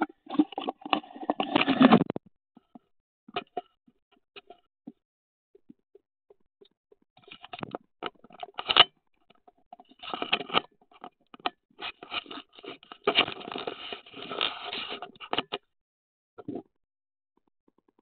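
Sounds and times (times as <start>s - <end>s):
fabric scraping against camera: 0.3s - 2.2s, 12.1s - 15.3s.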